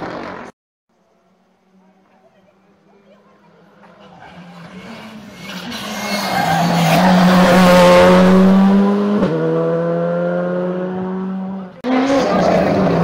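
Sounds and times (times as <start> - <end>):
rally car engine at high revs: 3.8 - 13.0.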